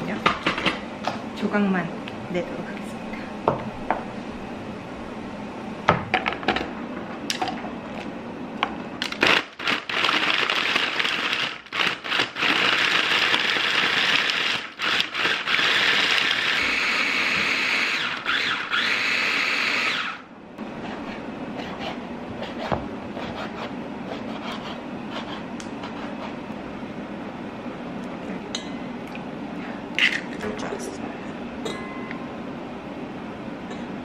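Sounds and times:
food processor motor chopping: 0:09.0 - 0:20.2.

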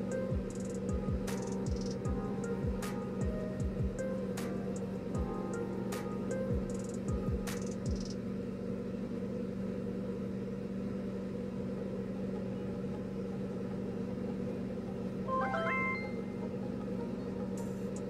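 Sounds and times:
low droning hum: 0:00.0 - 0:18.0
high chime-like notes: 0:15.3 - 0:16.4.

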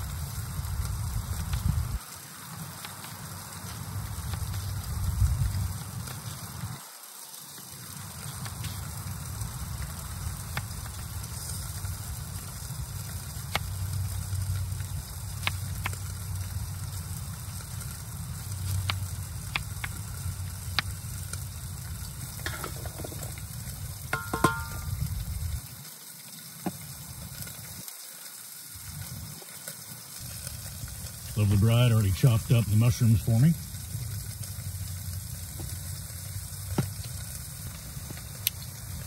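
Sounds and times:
metal pot ringing: 0:24.1 - 0:24.9.

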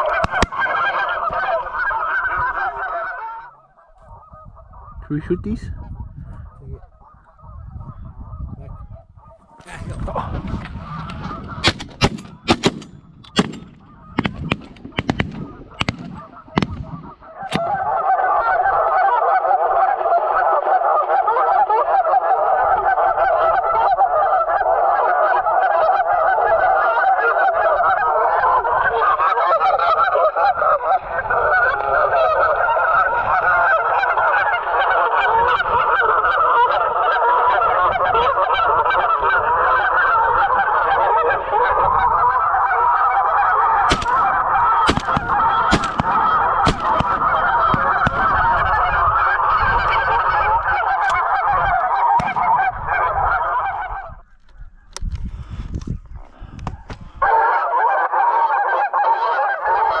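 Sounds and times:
geese honking: 0:00.0 - 0:54.9, 0:56.3 - 1:00.0
shotgun shots: 0:00.1 - 0:00.7, 0:11.6 - 0:17.9, 0:43.9 - 0:48.9, 0:52.2 - 0:53.0.

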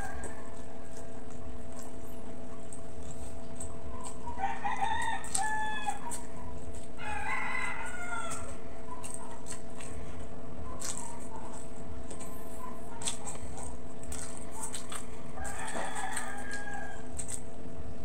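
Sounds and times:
rooster crowing: 0:04.4 - 0:06.2, 0:07.0 - 0:08.6, 0:15.4 - 0:17.1.

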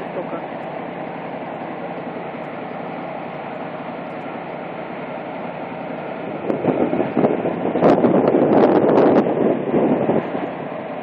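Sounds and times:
truck engine running steadily: 0:00.0 - 0:11.0
wind buffeting microphone: 0:03.2 - 0:11.0.

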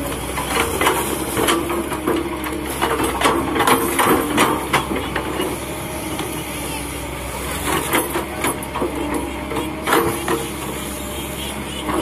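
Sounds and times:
excavator diesel engine under load: 0:00.0 - 0:12.0
excavator bucket knocks and clanks: 0:00.2 - 0:05.6, 0:07.7 - 0:10.7, 0:11.8 - 0:12.0.

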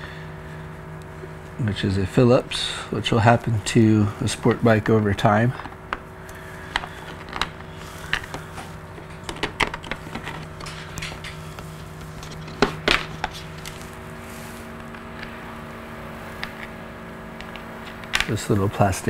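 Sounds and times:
steady low hum: 0:00.0 - 0:19.0
plastic cover parts handled: 0:06.7 - 0:14.0.

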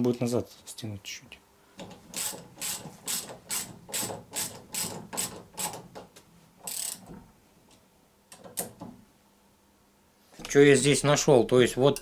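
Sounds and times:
ratchet rasp: 0:01.8 - 0:05.8, 0:06.7 - 0:07.1
ratchet clicking: 0:02.1 - 0:05.8, 0:06.6 - 0:07.1.

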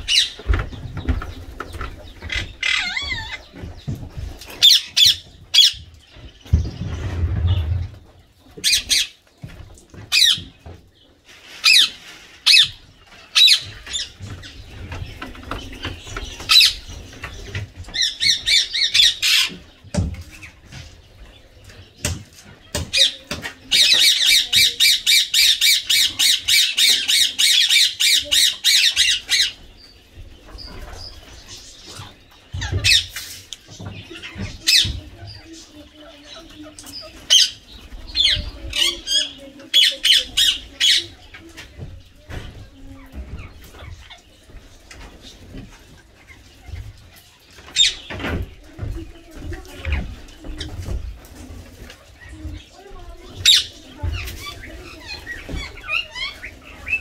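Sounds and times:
parakeet squawking and chirping: 0:02.3 - 0:03.5.

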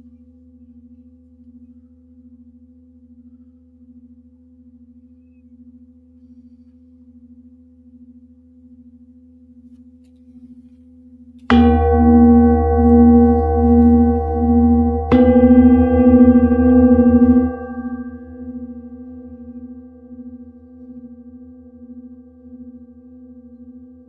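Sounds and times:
singing bowl ringing: 0:11.5 - 0:22.6.

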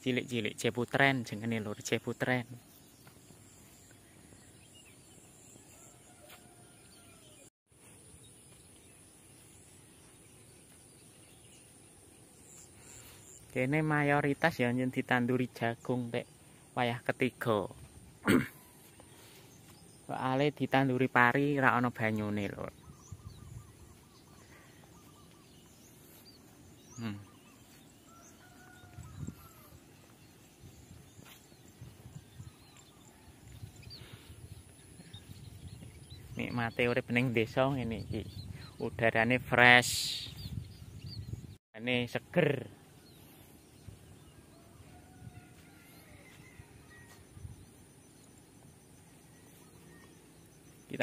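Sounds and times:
small birds chirping: 0:00.0 - 0:51.0
faint bird calls: 0:22.5 - 0:36.6, 0:42.6 - 0:51.0.

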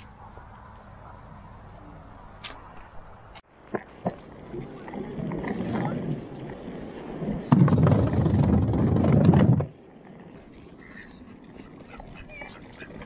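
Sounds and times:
skateboard wheels rolling on asphalt: 0:00.0 - 0:13.0
skateboard rumbling over wooden bridge: 0:03.7 - 0:13.0.

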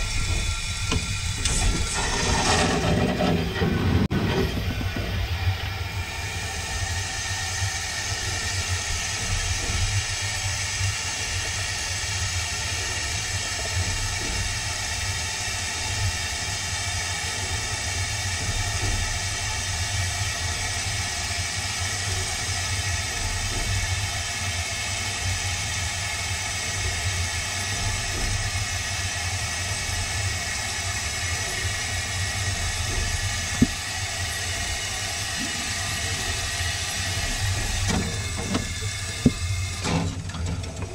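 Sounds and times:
low rumble: 0:00.0 - 0:10.5
steam hissing: 0:00.0 - 0:40.9.

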